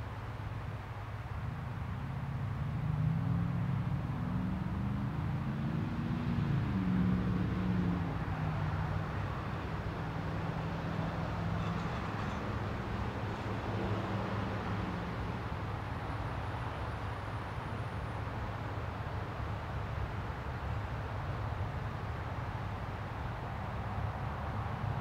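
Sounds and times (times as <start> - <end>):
passing vehicle engine hum: 1.4 - 20.8.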